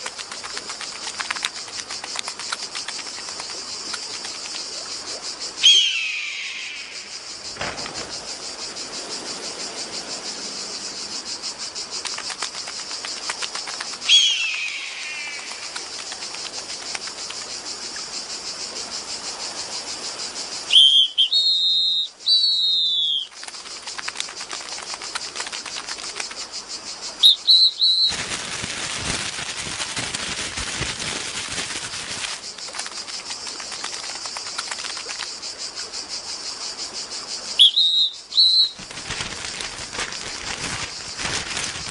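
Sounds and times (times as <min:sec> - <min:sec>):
insect-like chirring: 0:00.0 - 0:41.9
falling whistle: 0:05.6 - 0:06.4, 0:20.7 - 0:23.3, 0:27.2 - 0:28.2, 0:37.6 - 0:38.8
whistled chirps: 0:05.6 - 0:07.2, 0:14.1 - 0:15.4, 0:20.7 - 0:23.3, 0:27.2 - 0:28.2, 0:37.6 - 0:38.9.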